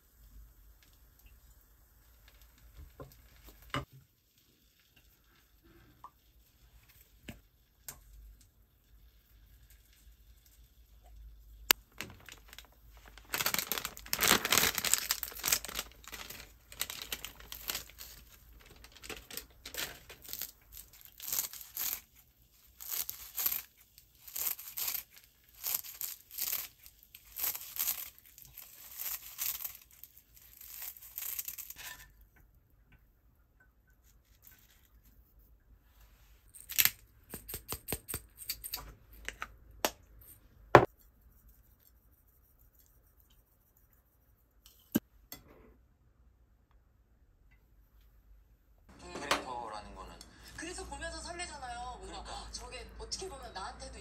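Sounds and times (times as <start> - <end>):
plastic packet tearing and rustling: 11.7 - 31.8.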